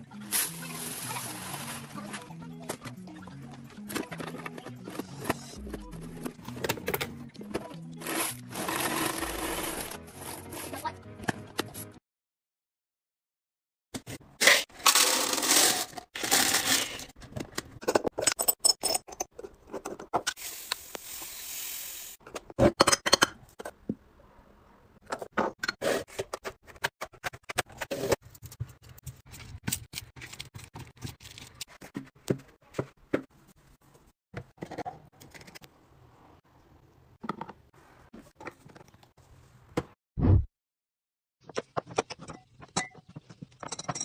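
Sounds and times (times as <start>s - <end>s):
glass jars clinking: 42.2s - 44.0s.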